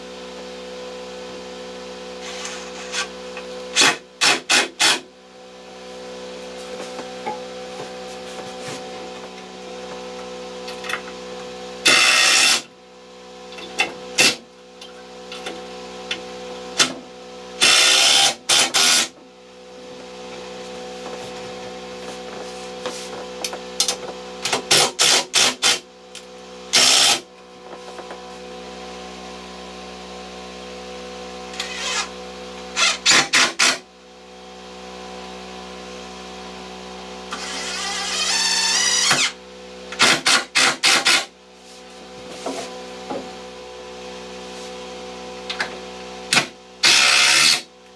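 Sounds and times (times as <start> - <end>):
impact driver driving screws: 11.9 - 12.7, 17.6 - 19.1, 26.8 - 27.2, 40.0 - 41.3, 46.8 - 47.7.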